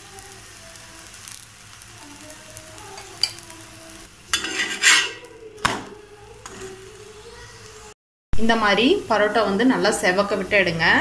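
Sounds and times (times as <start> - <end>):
flatbread sizzling in oil: 0.0 - 11.0
spatula scraping griddle: 4.3 - 5.8, 6.4 - 6.8.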